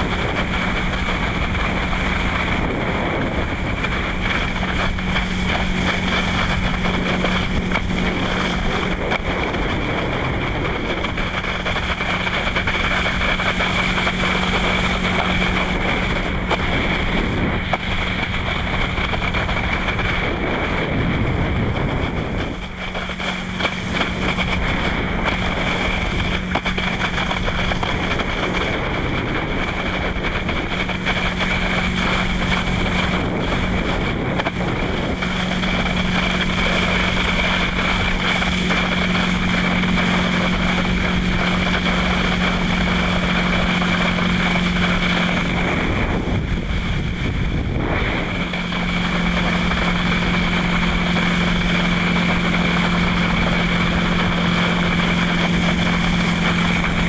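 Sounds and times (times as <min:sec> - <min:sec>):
boat engine drone: 0:00.0 - 0:57.0
wind rushing over microphone: 0:00.0 - 0:57.0.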